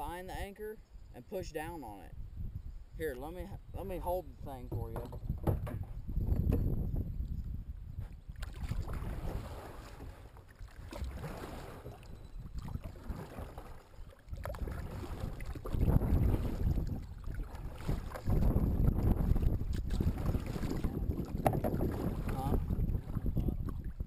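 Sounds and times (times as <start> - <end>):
wind gusting on microphone: 1.0 - 13.6, 14.3 - 24.0
kayak paddle splashing: 8.1 - 24.0.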